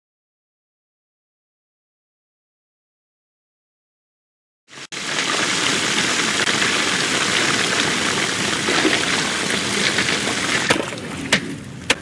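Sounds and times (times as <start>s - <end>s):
water gushing onto rocks: 4.8s - 11.4s.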